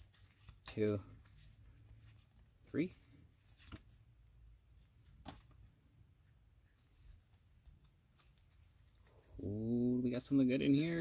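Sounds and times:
trading cards handled: 0.0 - 4.1, 5.0 - 5.8, 6.6 - 9.6.

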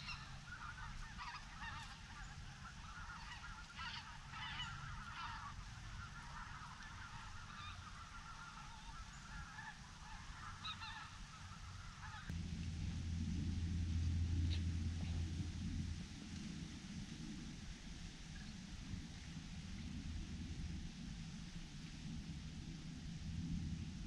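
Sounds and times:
geese honking: 0.0 - 12.4
low steady hum: 0.0 - 24.0.

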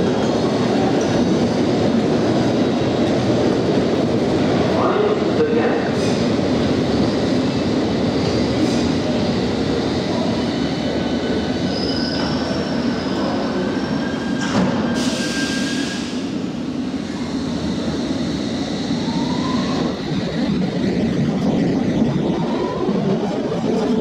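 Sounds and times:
train rumble with thin squeal: 0.0 - 1.4, 10.0 - 24.0
train whine accelerating: 8.2 - 24.0.

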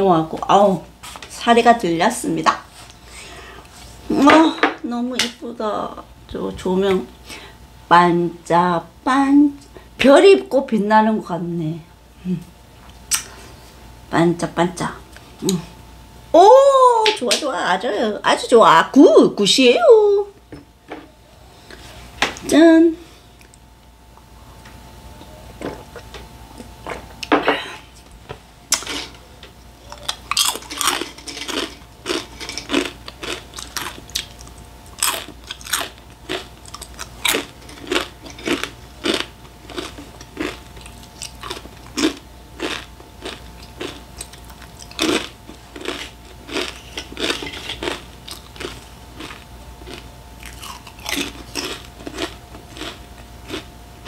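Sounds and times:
faint steady hum: 0.0 - 54.0
crunching snacks being chewed: 28.7 - 29.1, 29.8 - 53.7.

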